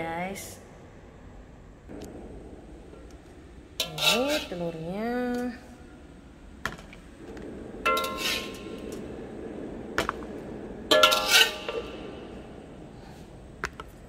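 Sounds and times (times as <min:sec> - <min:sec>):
wok ringing: 0:03.8 - 0:04.7, 0:07.9 - 0:09.1, 0:10.9 - 0:12.6
metal spatula scraping a wok: 0:03.8 - 0:04.8, 0:07.9 - 0:09.1, 0:10.9 - 0:12.6.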